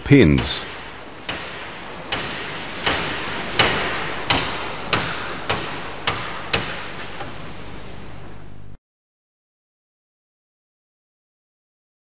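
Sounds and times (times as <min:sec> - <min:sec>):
hammer striking metal punch: 0:00.4 - 0:06.9.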